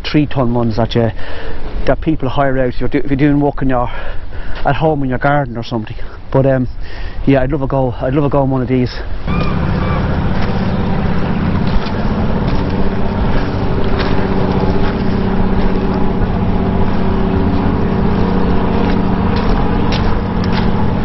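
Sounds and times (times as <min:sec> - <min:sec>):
engine running steadily: 0:09.0 - 0:21.0.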